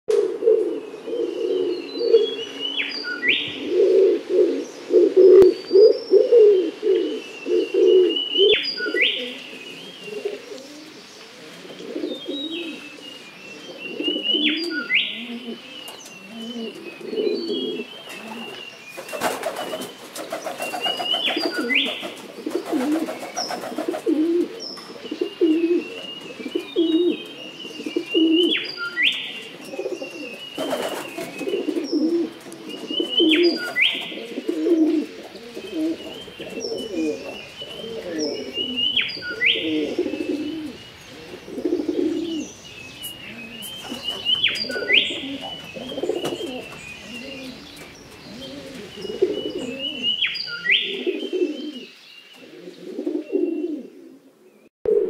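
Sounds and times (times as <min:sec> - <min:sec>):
pigeon cooing: 0:00.1 - 0:02.6, 0:03.3 - 0:18.6, 0:20.4 - 0:54.3
songbird singing high phrase: 0:35.5 - 0:52.3.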